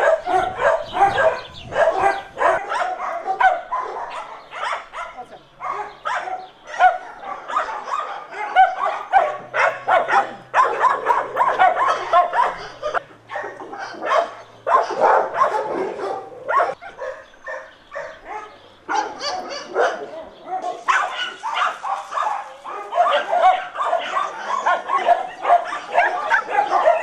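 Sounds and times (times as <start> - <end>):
dogs barking: 0.0 - 27.0.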